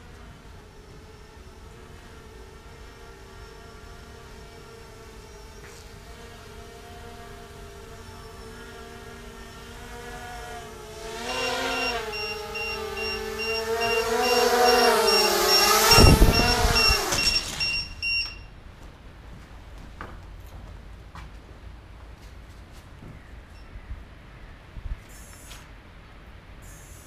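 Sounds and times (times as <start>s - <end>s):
quadcopter motors humming: 0.0s - 18.5s, 26.6s - 27.0s
high rapid beeping: 11.4s - 18.4s.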